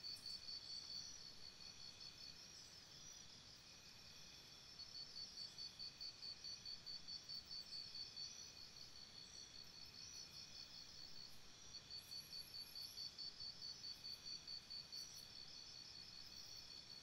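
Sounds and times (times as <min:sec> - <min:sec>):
faint insect-like chirping: 0:00.0 - 0:17.0.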